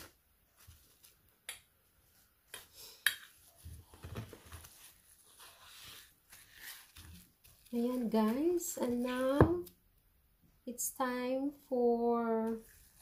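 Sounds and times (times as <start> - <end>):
cling film crinkling: 4.5 - 9.2.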